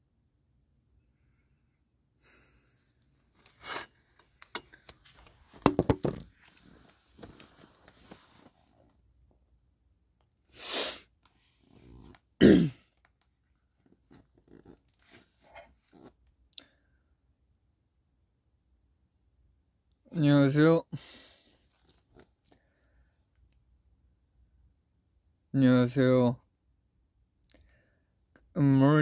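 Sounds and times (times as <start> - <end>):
handling clicks and rustles: 3.4 - 8.9.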